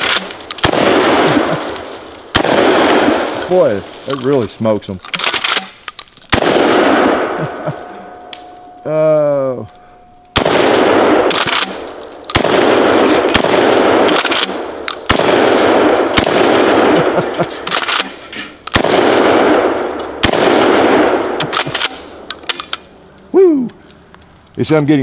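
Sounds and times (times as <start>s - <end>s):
shotgun shots with echo: 0.0s - 3.6s, 5.2s - 7.7s, 10.4s - 22.2s.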